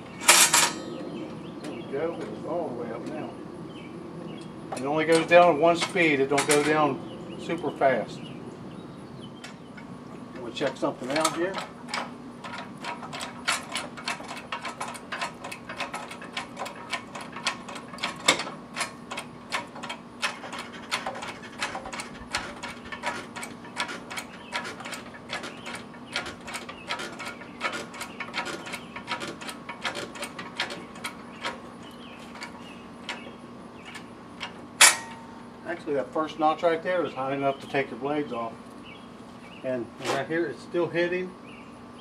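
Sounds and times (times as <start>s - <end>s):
hydraulic lift lever metallic clicks: 32.4s - 35.3s
loud sharp metal clack: 34.8s - 35.3s.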